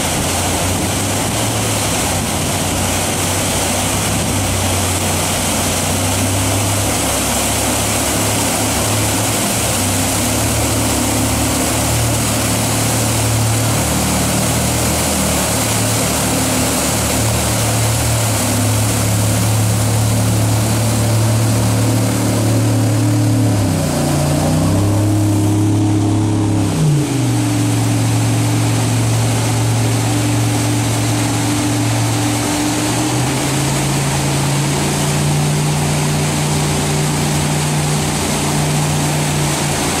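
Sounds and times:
jet boat engines running hard: 0:00.0 - 0:40.0
whitewater rushing: 0:00.0 - 0:40.0.

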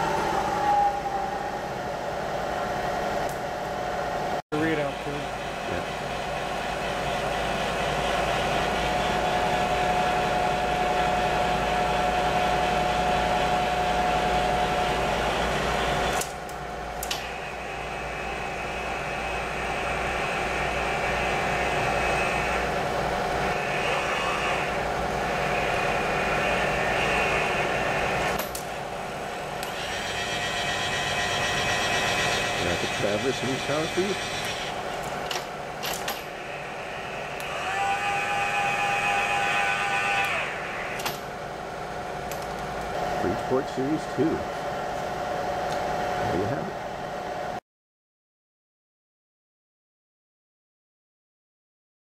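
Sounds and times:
milling machine running: 0:03.9 - 0:16.3, 0:17.0 - 0:47.2
power feed motor: 0:17.1 - 0:28.6, 0:29.6 - 0:35.0, 0:36.3 - 0:41.2.

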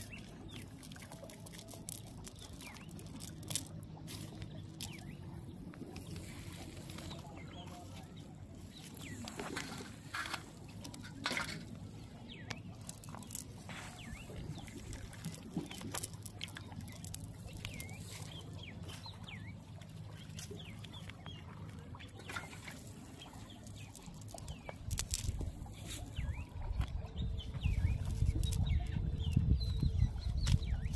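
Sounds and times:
nylon net crackling and rustling: 0:00.0 - 0:30.9
bird chirps: 0:12.1 - 0:30.9.

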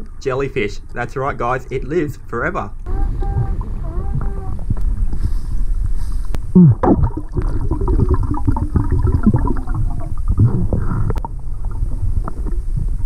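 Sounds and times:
underwater rumble of moving water: 0:02.8 - 0:13.0.

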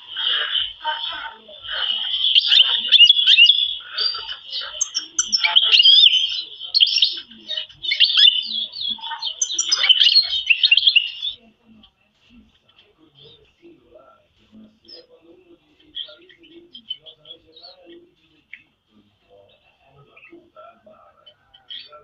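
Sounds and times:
canary singing: 0:00.0 - 0:11.9, 0:13.0 - 0:22.0.

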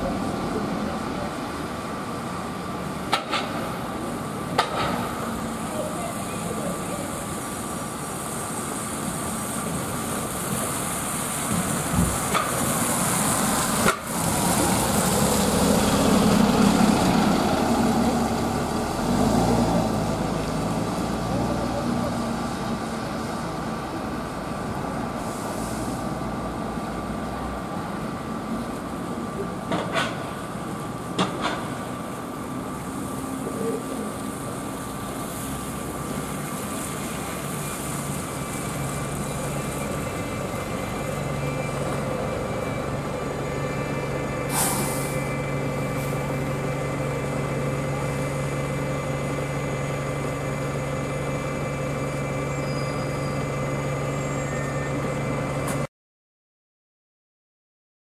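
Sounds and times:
bus engines humming: 0:00.0 - 0:55.9
bus passing: 0:00.0 - 0:55.9
air brake hiss: 0:25.2 - 0:26.2, 0:44.5 - 0:45.3.

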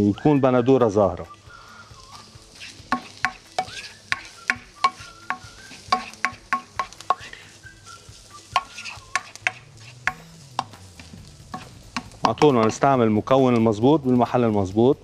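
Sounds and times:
faint sizzle: 0:00.0 - 0:14.8
spoon clinking against a pot: 0:02.9 - 0:07.3, 0:08.5 - 0:10.7.

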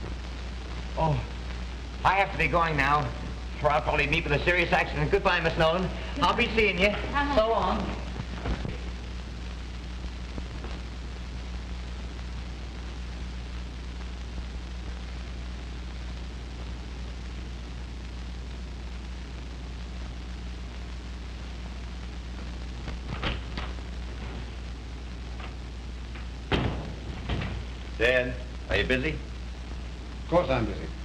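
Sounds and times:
film soundtrack hiss and hum: 0:00.0 - 0:31.0.

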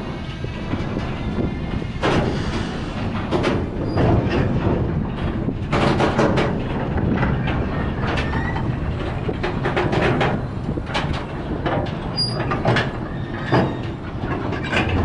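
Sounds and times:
steel wheels rumbling on rail: 0:00.0 - 0:15.0
wheels and couplings clanking: 0:00.0 - 0:15.0.

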